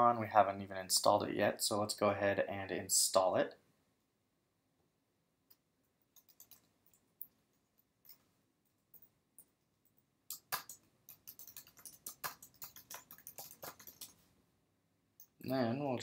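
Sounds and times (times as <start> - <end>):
computer keyboard typing: 6.1 - 7.3, 8.9 - 14.2.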